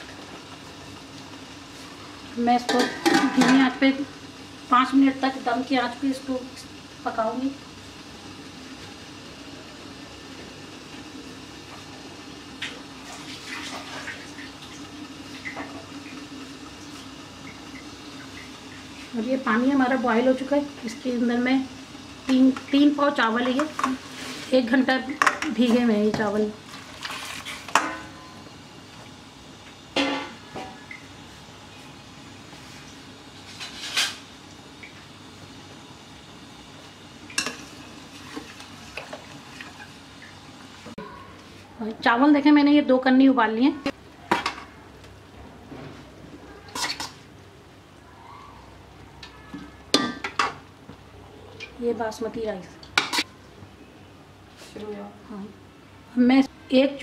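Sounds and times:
pot bubbling and crackling: 0.0 - 57.0
rice being stirred: 22.4 - 27.9.

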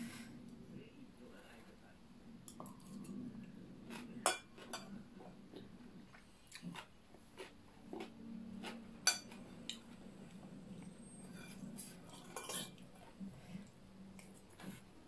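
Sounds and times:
chewing: 2.5 - 15.0
cutlery clinking on plates: 4.2 - 4.9, 9.0 - 9.8, 12.2 - 12.8.

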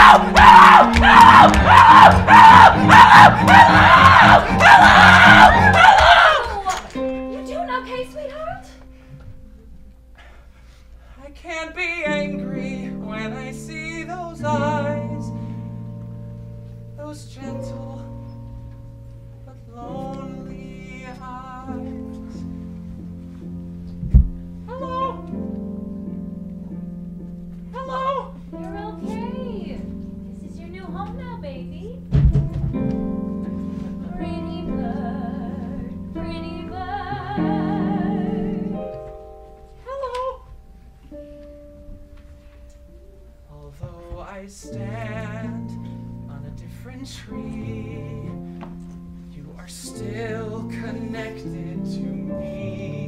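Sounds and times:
person singing with vibrato: 0.0 - 8.0, 24.6 - 25.6, 27.7 - 29.9, 33.7 - 40.6, 43.5 - 48.6, 49.3 - 53.0
instrumental accompaniment: 12.3 - 43.6.

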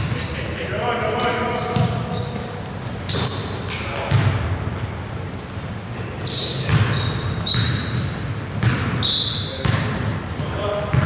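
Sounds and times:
sneakers squeaking: 0.0 - 11.0
basketball dribbling on hardwood: 1.8 - 2.0.

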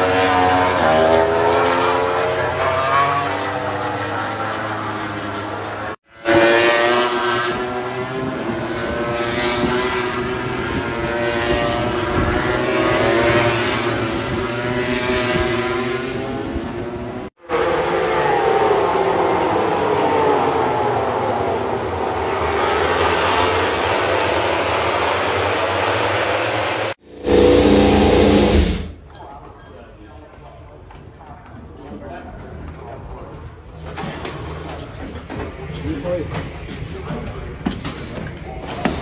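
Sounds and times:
racing motorcycles passing: 0.0 - 29.0.

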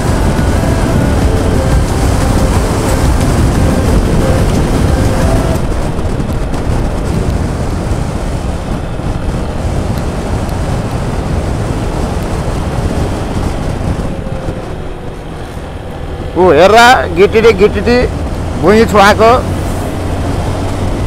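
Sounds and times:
motorcycle engine: 0.0 - 21.0
wind rush on microphone: 0.0 - 21.0.

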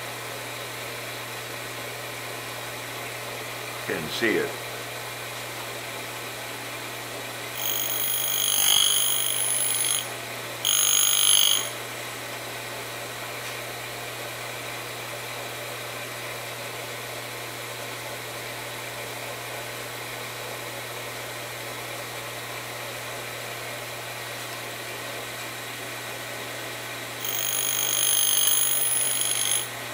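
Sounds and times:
grinder spindle motor hum: 7.6 - 11.8, 27.2 - 29.8
grinder wheel whining: 7.6 - 11.8, 27.2 - 29.8.

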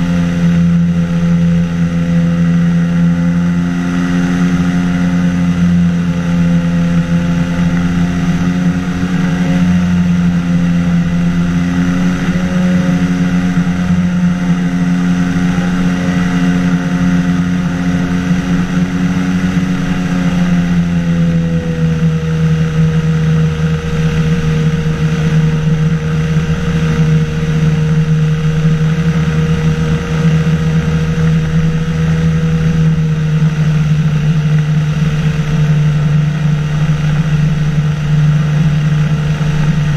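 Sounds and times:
light aircraft engine droning: 0.0 - 39.9.

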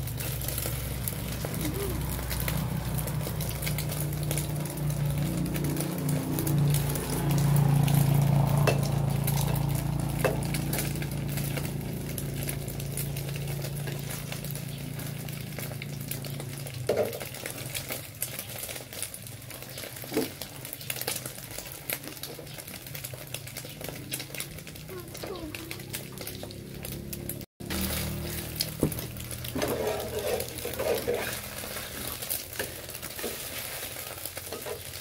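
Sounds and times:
faint frying sizzle: 0.0 - 35.0
metal spatula scraping frying pan: 27.7 - 35.0.

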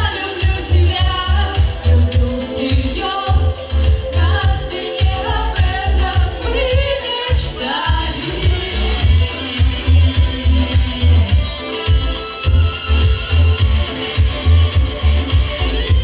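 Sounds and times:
women singing pop vocals: 0.0 - 9.9
backing music with heavy bass: 0.0 - 16.0.

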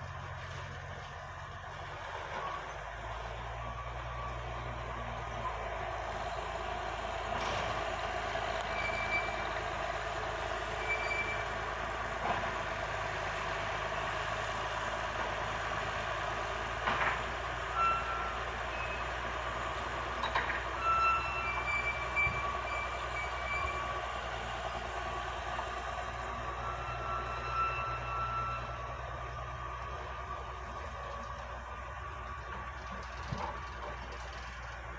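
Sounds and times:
heavy engine running under load: 0.0 - 34.9
high squeaks: 20.2 - 24.0, 26.3 - 34.9.

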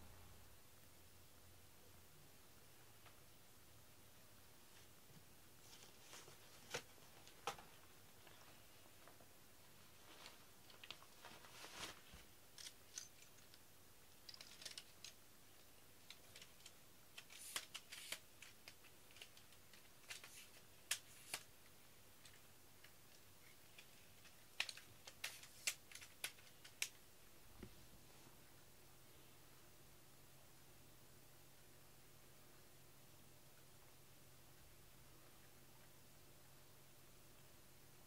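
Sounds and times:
faint small clicks and ticks: 10.1 - 11.4, 12.2 - 27.7.

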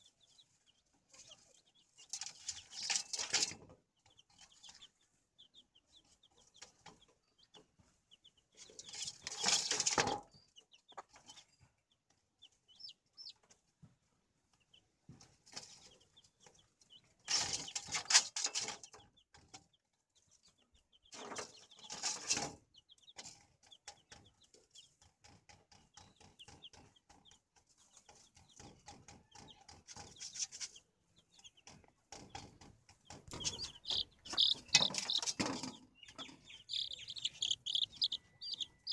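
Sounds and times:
chicks peeping: 0.0 - 38.9
rustling and scratching: 0.2 - 5.2, 6.0 - 12.7, 13.3 - 38.9
hen clucking softly: 28.0 - 38.9.

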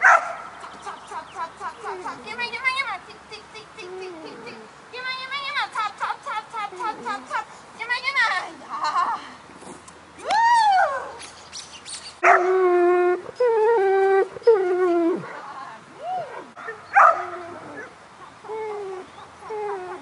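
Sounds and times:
dog whining and howling: 18.5 - 20.0.

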